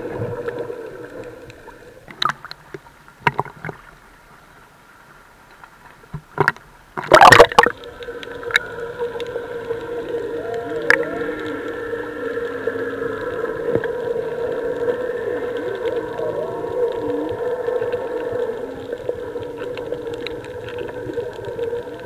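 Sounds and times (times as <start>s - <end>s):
low underwater hum with tones: 0.0s - 22.0s
water splashing against camera: 5.6s - 22.0s.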